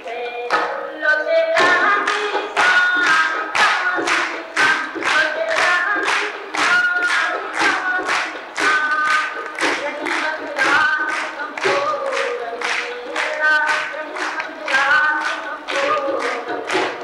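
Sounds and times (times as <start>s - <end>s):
rhythmic beat of sharp strokes: 0.0s - 17.0s
tabla: 0.0s - 17.0s
woman singing folk song: 0.0s - 17.0s.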